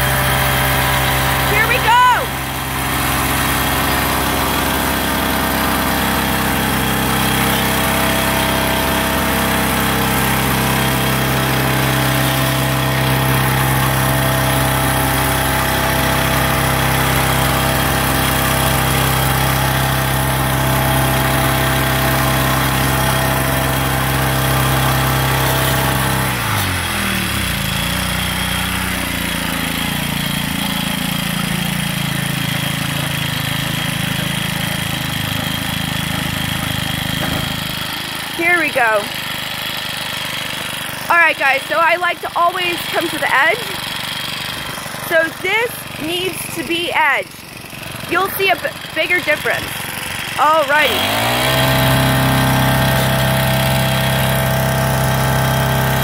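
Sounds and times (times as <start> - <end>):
small engine running: 0.0 - 56.0.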